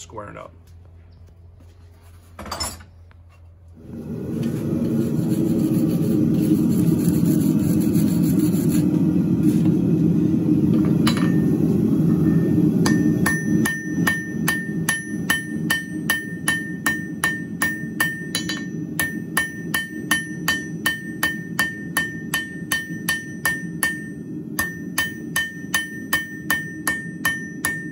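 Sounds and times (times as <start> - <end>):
gas forge burner rushing: 3.7 - 27.9
hammer ringing on hot steel: 11.0 - 27.9.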